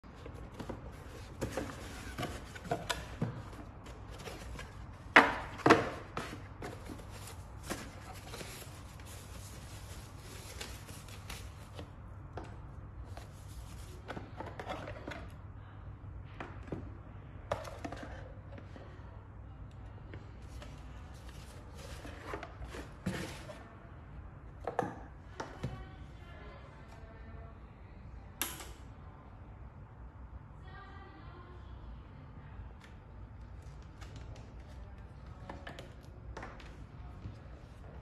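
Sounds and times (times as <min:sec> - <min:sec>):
foam packing sheets rustling: 0:05.9 - 0:11.8.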